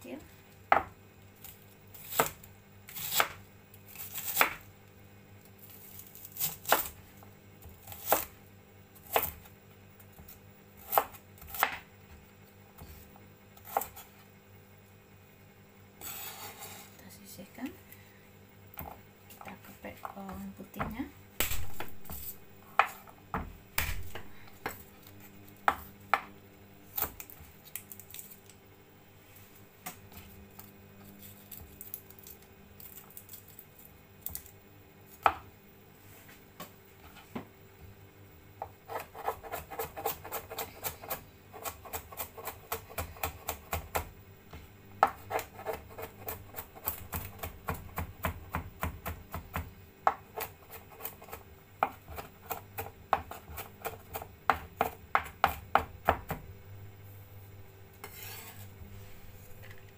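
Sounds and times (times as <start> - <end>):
fast chopping on wooden board: 45.0 - 56.4.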